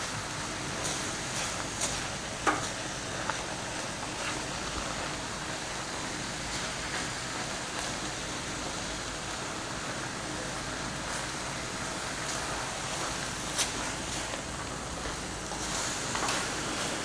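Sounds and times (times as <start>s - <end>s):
food sizzling in skillet: 0.1s - 17.0s.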